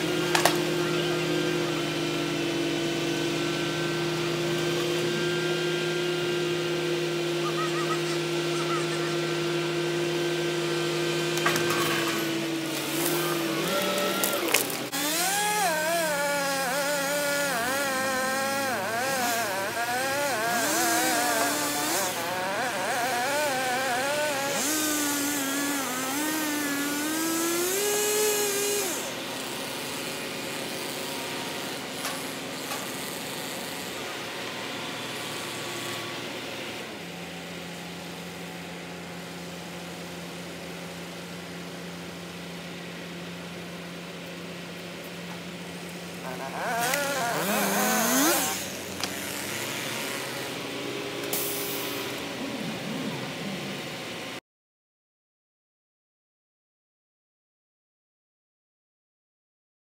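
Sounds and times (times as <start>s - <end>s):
chainsaw revving: 0.0s - 34.0s, 45.7s - 54.4s.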